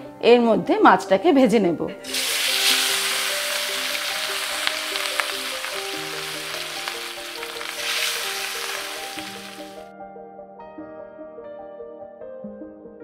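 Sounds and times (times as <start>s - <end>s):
fish sizzling in hot oil: 2.0s - 9.8s.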